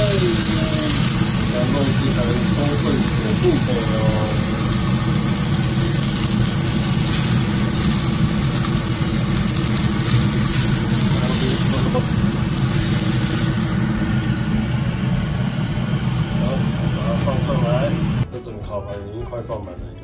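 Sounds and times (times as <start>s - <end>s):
steak sizzling in a hot pan: 0.0s - 16.4s
range hood fan running: 0.0s - 18.3s.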